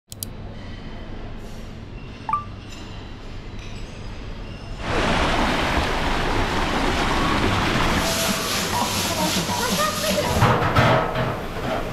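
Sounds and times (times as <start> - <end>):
water rushing down a slide: 4.8 - 10.6.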